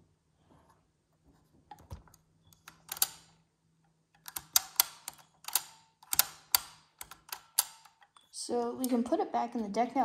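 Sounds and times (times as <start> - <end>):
cassette deck mechanism clicks: 1.9 - 3.3.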